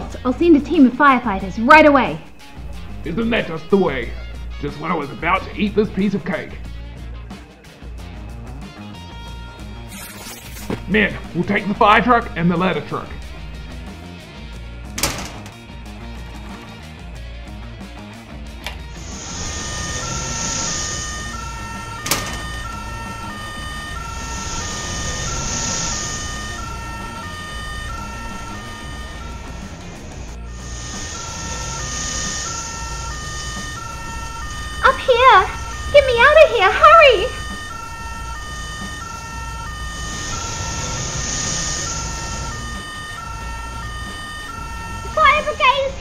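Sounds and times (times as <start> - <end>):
two-tone fire engine siren: 0.0 - 6.9, 8.9 - 13.8, 18.9 - 46.0
low engine rumble: 0.0 - 9.7, 10.8 - 46.0
rushing hiss: 19.0 - 21.3, 24.3 - 26.6, 30.6 - 33.4, 40.0 - 42.6.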